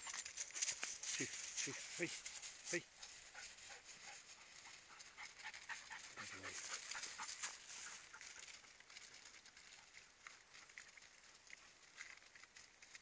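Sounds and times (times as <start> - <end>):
dogs panting: 0.0 - 12.2
rustling through frosted grass: 0.0 - 13.0
dog grunting: 5.8 - 7.3.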